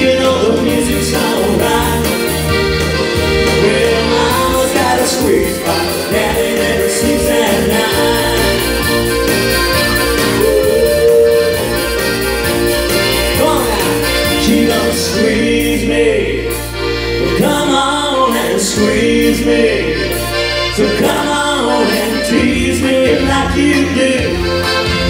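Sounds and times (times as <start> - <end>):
percussion beat: 0.0 - 15.3
bass line: 0.0 - 25.0
piano accordion playing dance tune: 0.0 - 25.0.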